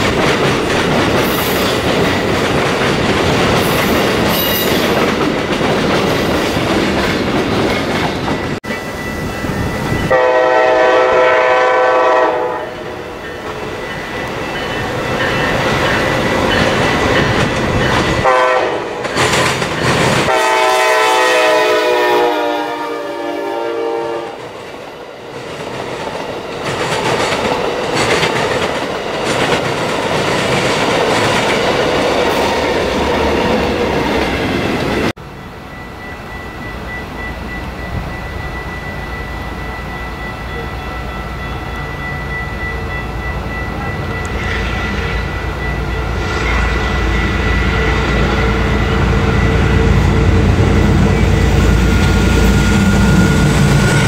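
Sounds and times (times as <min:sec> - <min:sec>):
train wheels clacking over rail joints: 0:00.0 - 0:08.6, 0:14.3 - 0:20.4, 0:25.4 - 0:33.6
distant train rumbling: 0:00.0 - 0:54.0
steady high ringing tone: 0:08.3 - 0:10.4, 0:12.6 - 0:18.1, 0:35.2 - 0:54.0
train horn blasts: 0:10.0 - 0:13.2, 0:18.2 - 0:19.0, 0:20.2 - 0:24.4.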